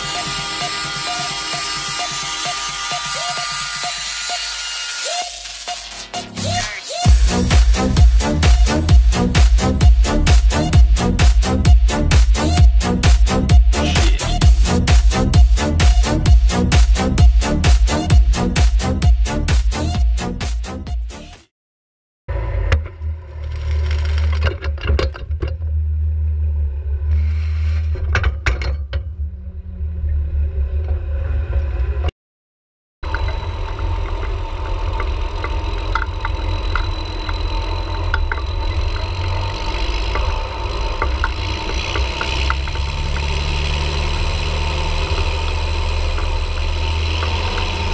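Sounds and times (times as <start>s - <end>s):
tractor engine rumbling: 7.1s - 17.6s, 22.3s - 32.1s, 33.0s - 47.9s.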